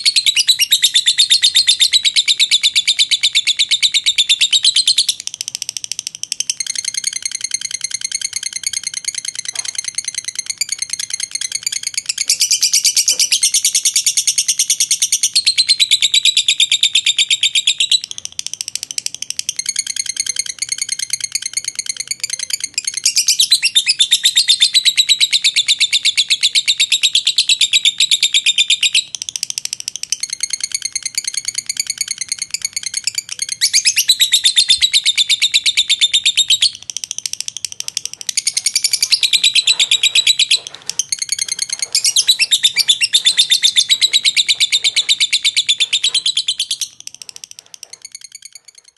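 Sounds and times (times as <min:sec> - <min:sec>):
lovebird shrill chattering trill: 0:00.0 - 0:05.6, 0:06.3 - 0:18.2, 0:19.0 - 0:47.0.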